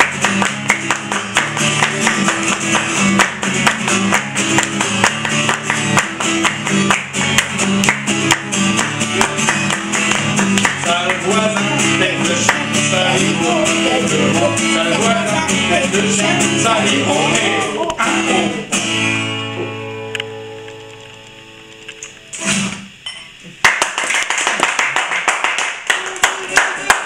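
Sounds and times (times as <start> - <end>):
acoustic guitar strumming: 0.0 - 23.4
wordless singing voice: 10.7 - 18.7.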